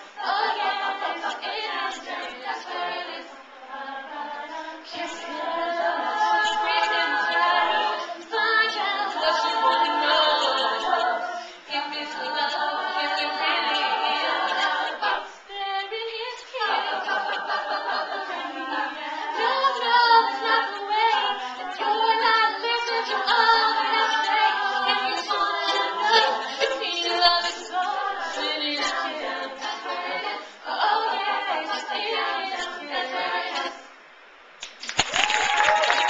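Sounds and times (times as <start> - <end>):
women singing in harmony: 0.0 - 34.0
audience applause: 34.8 - 36.0.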